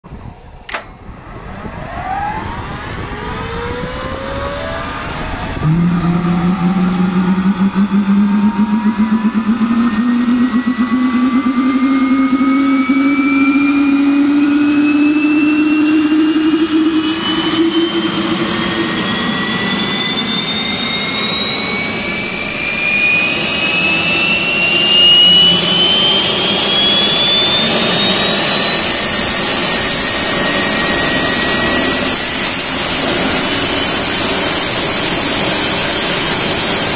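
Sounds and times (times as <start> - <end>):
gas turbine whine spooling up: 0.0 - 36.9
low rumble: 0.1 - 20.0.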